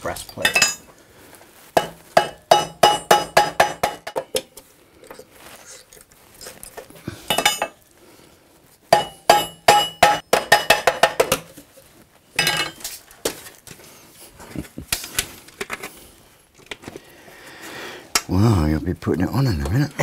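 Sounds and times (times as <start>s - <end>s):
metal armour clinking and ringing: 0.1s - 0.9s, 1.8s - 4.6s, 6.4s - 7.8s, 8.9s - 11.6s, 12.4s - 13.0s
sharp metallic taps: 1.8s - 4.5s, 8.9s - 11.5s.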